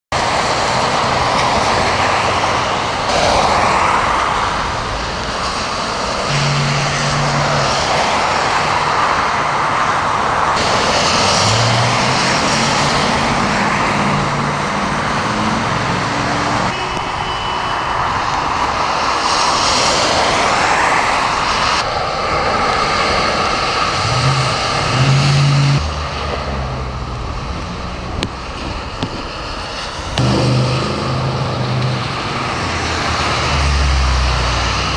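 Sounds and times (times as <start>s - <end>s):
car engines humming: 0.1s - 34.9s
cars splashing through floodwater: 0.2s - 30.2s.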